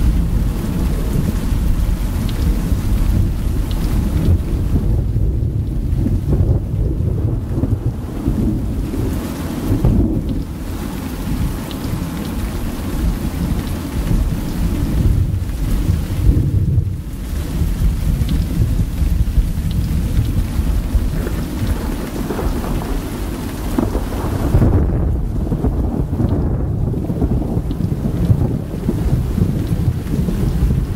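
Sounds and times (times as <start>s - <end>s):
low rolling thunder: 0.0s - 30.9s
steady rain: 0.0s - 30.9s.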